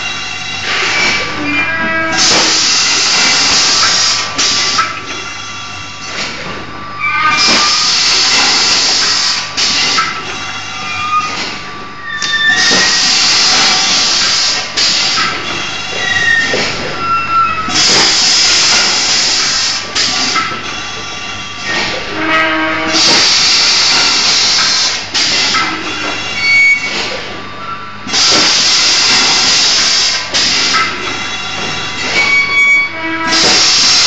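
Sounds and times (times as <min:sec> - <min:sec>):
compressed air hissing: 0:22.9 - 0:25.5, 0:33.2 - 0:34.0.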